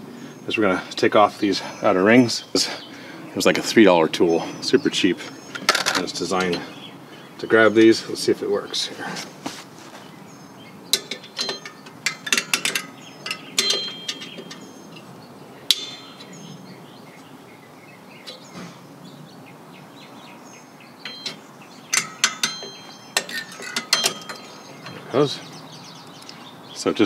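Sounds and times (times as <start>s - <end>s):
metal tool clicking on brake springs: 10.9s - 15.1s, 21.0s - 25.0s.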